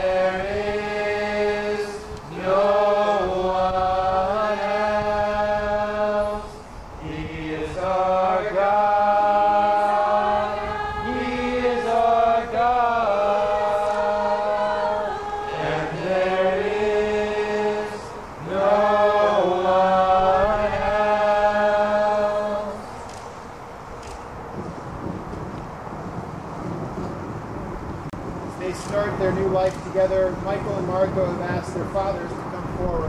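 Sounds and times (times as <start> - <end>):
voices singing slow song: 0.0 - 24.2.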